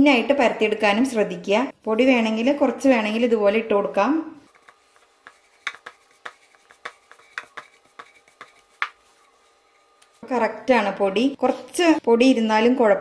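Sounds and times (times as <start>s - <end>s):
rolling pin clicking on board: 4.6s - 9.0s.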